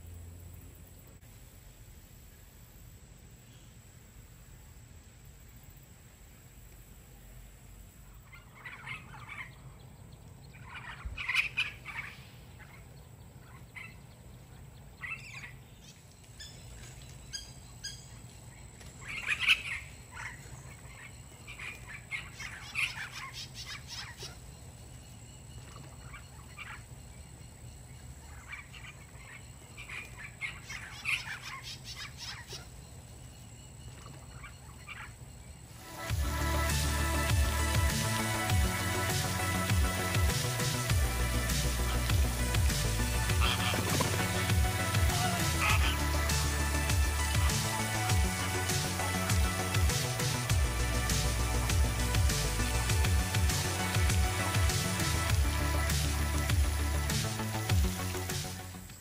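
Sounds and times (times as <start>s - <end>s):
parrots squawking and chirping: 8.1s - 57.1s.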